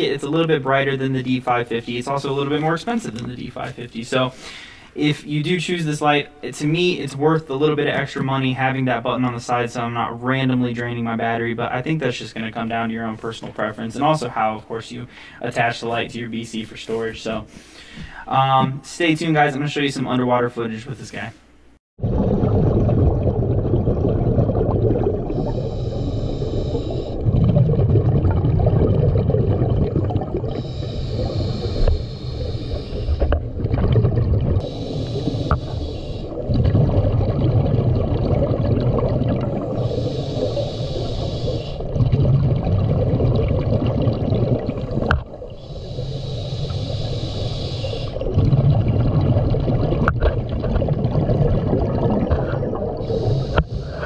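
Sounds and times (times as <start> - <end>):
regulator hiss on inhale: 4.3 - 5.0, 17.5 - 18.3, 25.4 - 27.2, 30.5 - 33.4, 34.6 - 36.4, 39.7 - 41.9, 45.6 - 48.2, 53.0 - 54.0
bubbling on exhale: 22.0 - 54.0.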